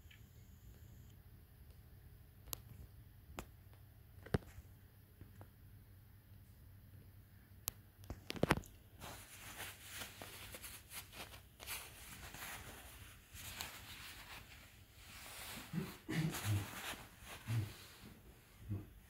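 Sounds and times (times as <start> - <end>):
duvet rustling and crinkling: 8.1 - 19.0.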